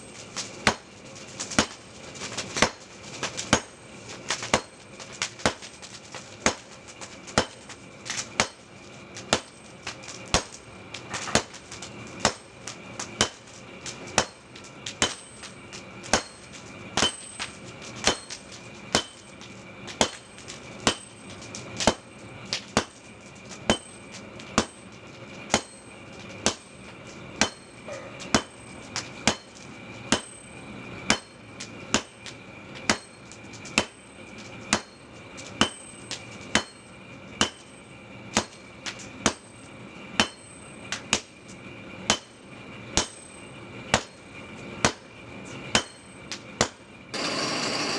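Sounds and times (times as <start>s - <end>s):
hammer striking metal on anvil: 8.4s - 8.6s, 14.2s - 15.4s, 16.1s - 17.4s, 18.0s - 19.3s, 20.0s - 21.2s, 23.7s - 24.0s, 25.5s - 26.7s, 27.4s - 28.6s, 29.2s - 30.4s, 31.1s - 32.2s, 32.9s - 33.2s, 33.8s - 34.0s, 34.7s - 35.0s, 35.6s - 37.8s, 38.4s - 38.6s, 39.2s - 39.5s, 40.2s - 41.3s, 42.1s - 42.4s, 43.0s - 43.3s, 45.7s - 47.3s.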